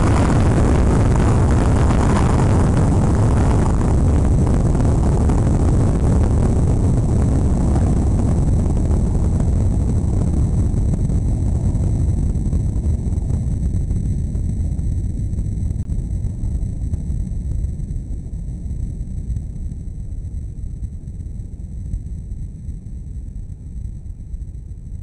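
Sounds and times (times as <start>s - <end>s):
rocket engines rumbling: 0.0s - 24.8s.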